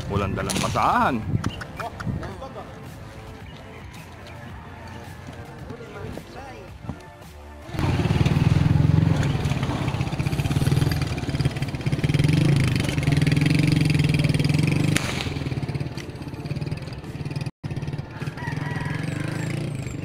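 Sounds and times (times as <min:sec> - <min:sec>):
small engine droning: 0:07.7 - 0:20.0.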